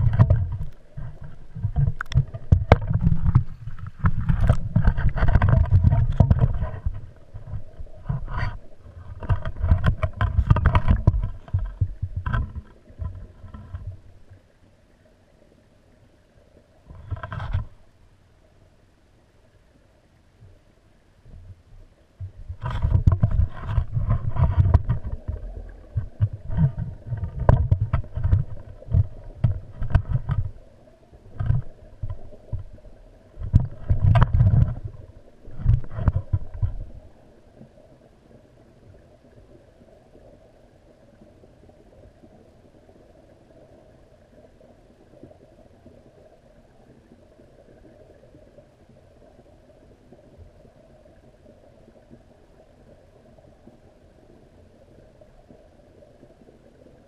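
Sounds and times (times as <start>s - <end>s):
underwater camera handling rumbles: 0.0s - 14.0s, 16.9s - 17.8s, 22.2s - 30.6s, 31.3s - 32.8s, 33.4s - 37.0s
faint underwater hum: 0.0s - 57.0s.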